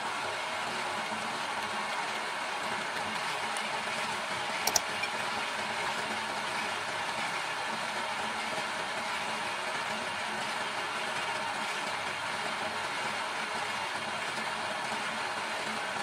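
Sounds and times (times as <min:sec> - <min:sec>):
sharp clicks: 0:04.6 - 0:04.9.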